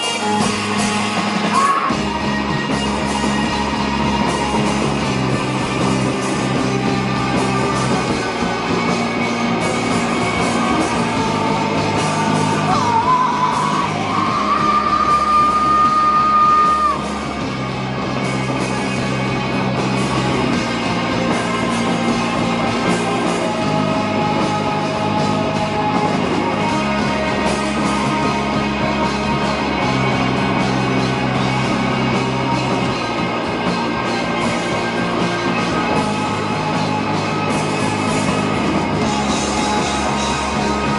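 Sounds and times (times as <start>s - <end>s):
rock band playing loudly: 0.0s - 40.9s
shouted vocals: 1.4s - 2.1s, 6.6s - 17.2s.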